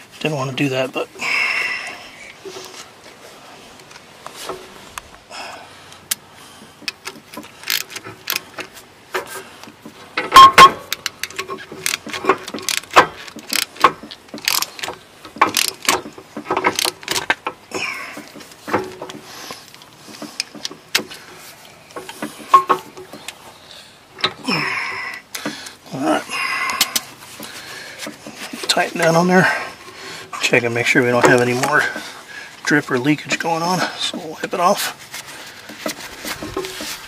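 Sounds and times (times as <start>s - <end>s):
small metal rattles: 6.6s - 37.0s
hand ratchet clicking: 6.8s - 8.7s, 10.3s - 21.2s.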